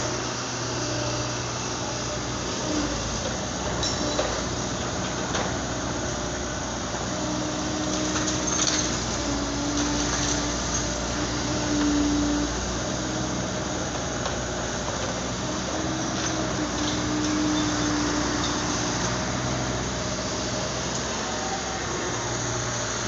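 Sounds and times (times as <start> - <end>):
excavator diesel engine running: 0.0 - 23.0.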